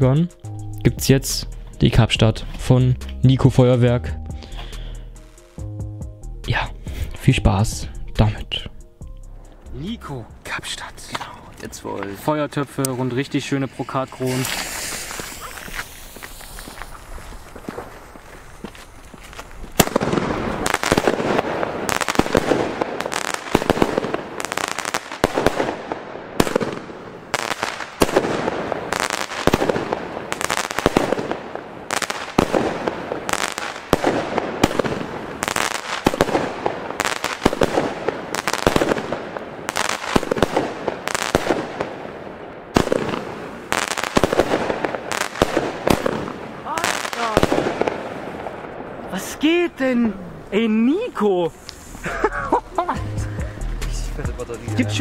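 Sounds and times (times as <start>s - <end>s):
fireworks bursting with crackling: 12.3s - 53.0s
fireworks launching: 12.8s - 50.0s
fuse burning: 13.7s - 42.0s.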